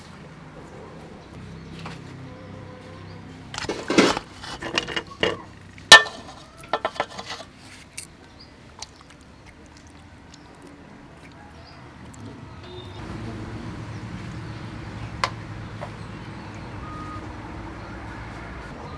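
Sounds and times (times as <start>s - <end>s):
skewers clattering against metal basin: 3.5s - 8.1s.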